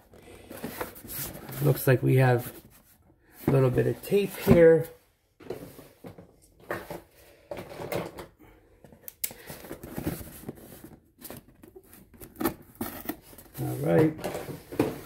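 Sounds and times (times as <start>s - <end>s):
box rustling and knocking: 9.6s - 15.0s.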